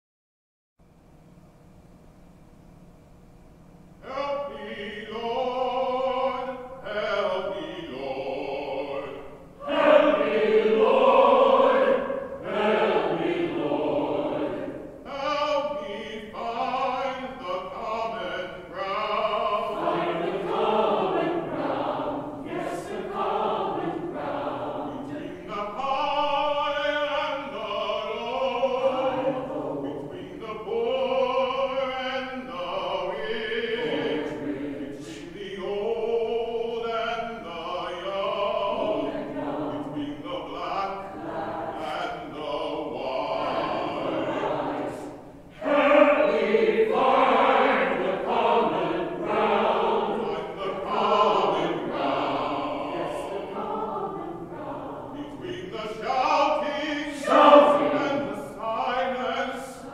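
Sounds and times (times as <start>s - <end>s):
mixed choir singing: 4.0s - 59.9s.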